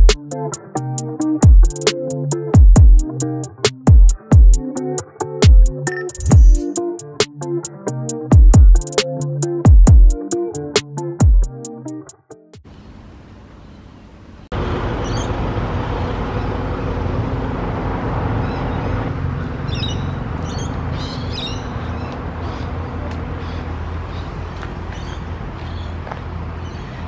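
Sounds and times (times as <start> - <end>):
road traffic rumble: 12.6 - 27.0
birds chirping: 15.0 - 17.3, 18.3 - 27.0.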